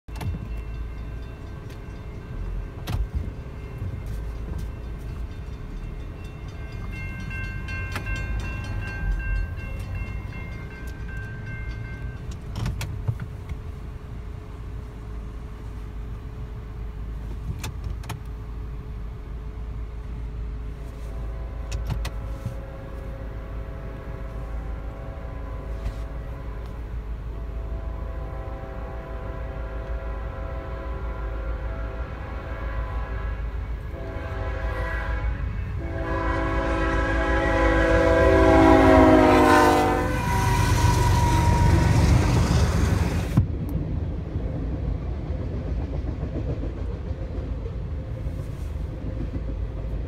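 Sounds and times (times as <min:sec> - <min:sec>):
low rumble inside car cabin: 0:09.4 - 0:30.4
distant train horn: 0:20.8 - 0:43.4.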